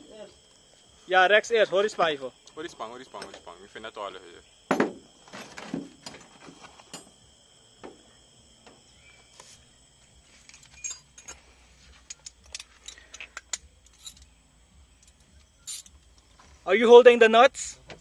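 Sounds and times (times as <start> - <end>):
metallic clicks of hand tools: 12.0 - 14.3.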